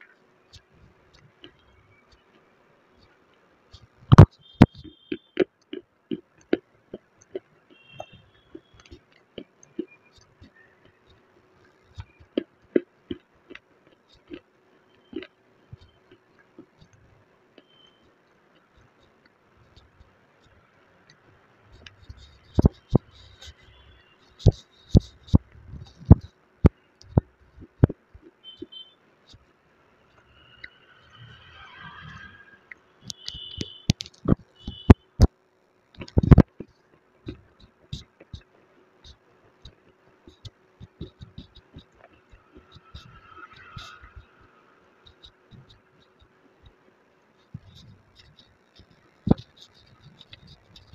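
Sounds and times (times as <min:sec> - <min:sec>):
crunching of clay being chewed: 0:03.8 - 0:17.9, 0:47.4 - 0:50.9.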